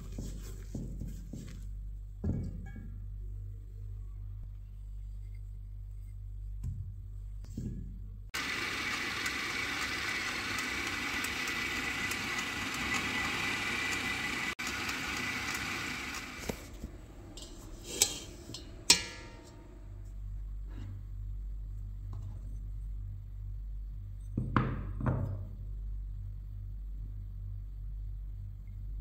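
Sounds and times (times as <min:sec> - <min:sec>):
food processor motor whining: 0:08.4 - 0:16.8.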